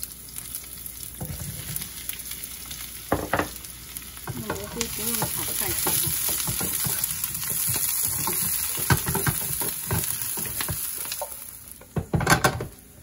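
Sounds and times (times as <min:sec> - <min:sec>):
vegetables sizzling in hot oil: 0:00.0 - 0:13.0
wooden spatula scraping pan: 0:04.3 - 0:11.4.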